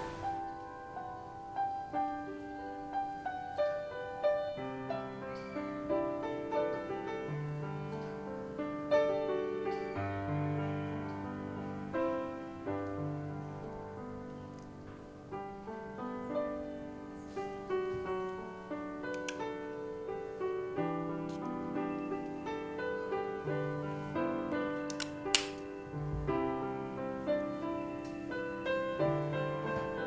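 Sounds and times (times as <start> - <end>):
slow gentle piano piece: 0.0 - 30.0.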